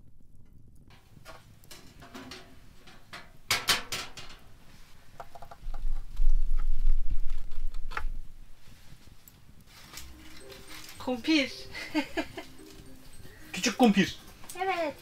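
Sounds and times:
clicks and knocks: 0.9 - 4.5
metal tray clattering: 1.2 - 4.5.

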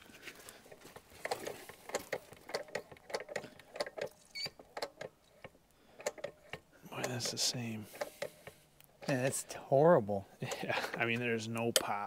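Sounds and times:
pump lever clicks and clacks: 1.2 - 9.2, 10.5 - 12.0.

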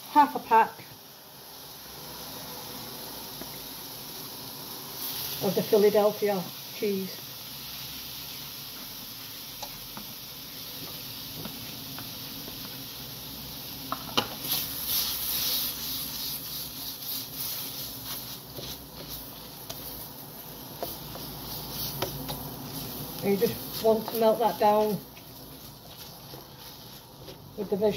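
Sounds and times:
vegetables sizzling in a pan: 0.0 - 27.9
spatula scraping a pan: 13.9 - 27.7.

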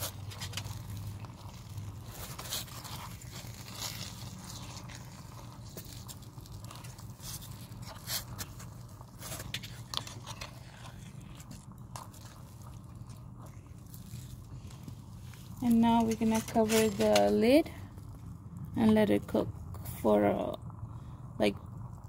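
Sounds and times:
steady low hum: 0.0 - 22.0
steel spatula scraping pan: 15.7 - 17.6.

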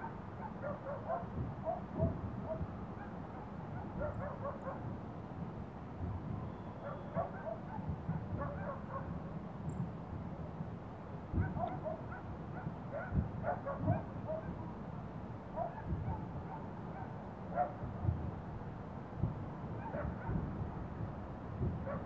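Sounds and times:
dogs barking and yelping: 0.4 - 3.1, 3.8 - 4.8, 6.8 - 9.1, 11.4 - 12.3, 19.8 - 20.4.

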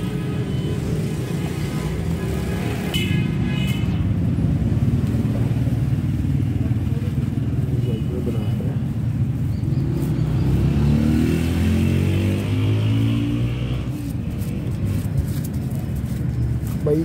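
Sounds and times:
street traffic rumble: 0.0 - 17.0
vehicle engine revving: 9.8 - 15.1.

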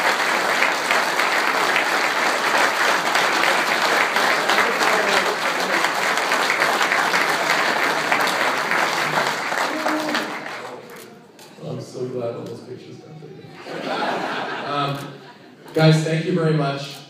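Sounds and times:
cheering: 0.0 - 11.0
audience applauding: 0.0 - 11.3
people talking: 11.6 - 13.8, 14.7 - 15.1, 15.7 - 17.0.

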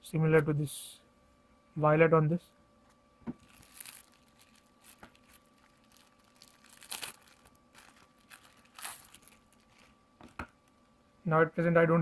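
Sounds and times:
plastic bag crinkling: 3.4 - 10.5.

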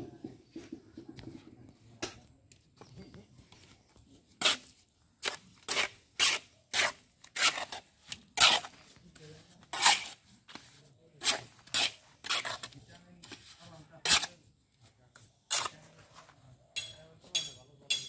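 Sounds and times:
trowel scraping mortar on blocks: 4.2 - 14.5, 15.1 - 16.4.

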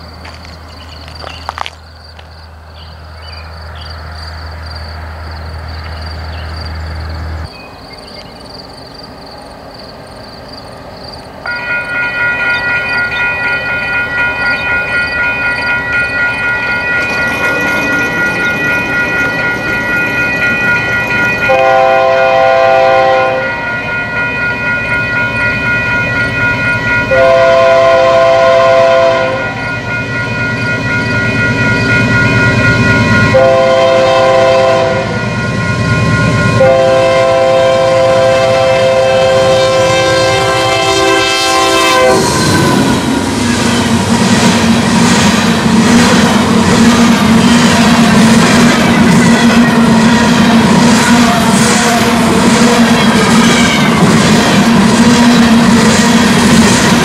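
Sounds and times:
freight train rumbling past: 0.0 - 57.0
locomotive horn blasts: 21.4 - 23.6, 27.1 - 29.7, 33.3 - 35.2, 36.6 - 42.9.

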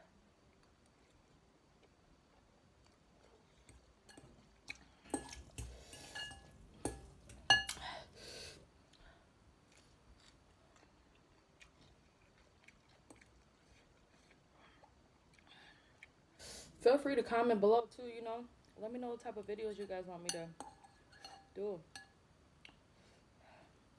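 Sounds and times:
fork clinking on glass bowl: 5.1 - 7.8, 20.3 - 22.2.

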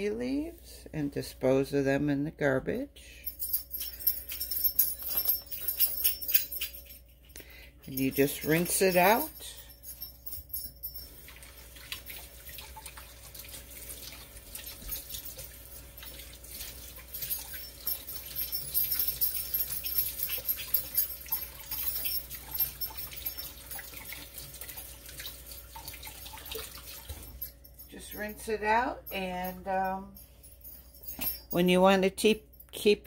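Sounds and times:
kitchen tap running: 11.2 - 27.4
water splashing with small knocks: 11.2 - 27.4.

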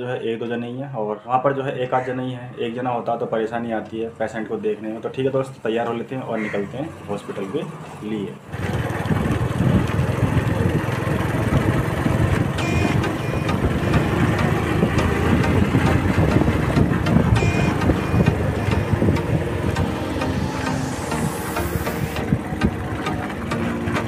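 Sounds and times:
wind and road noise: 6.4 - 24.0
motorcycle engine running: 8.5 - 24.0
short high beeps: 12.6 - 14.1, 17.1 - 22.2.

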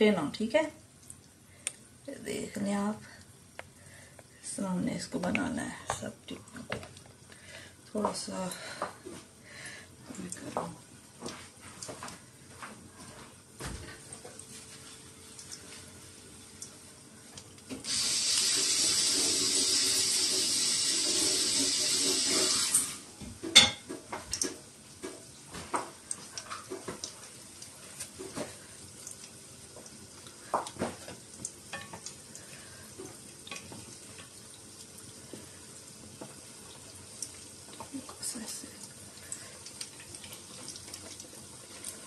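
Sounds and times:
food frying in oil: 0.0 - 42.0
water running from tap: 9.5 - 13.2, 13.9 - 42.0.

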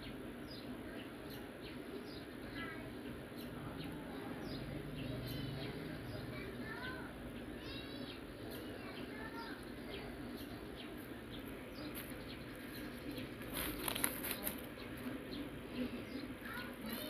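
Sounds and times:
birds chirping: 0.0 - 17.0
bubble wrap crackling: 13.4 - 14.7.

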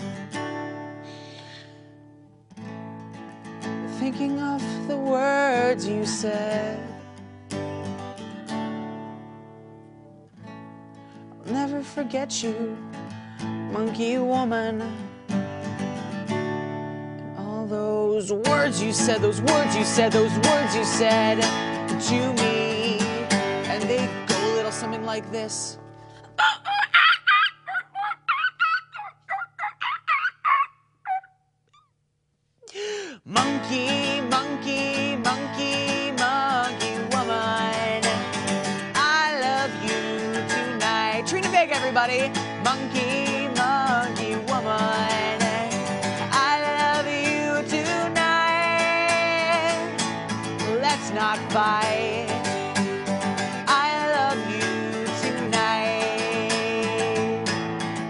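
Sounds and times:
acoustic guitar strumming: 0.0 - 28.2, 33.3 - 58.0
person singing: 4.0 - 7.0, 17.4 - 31.2, 32.6 - 57.7
woman imitating monkey calls: 26.3 - 31.9.

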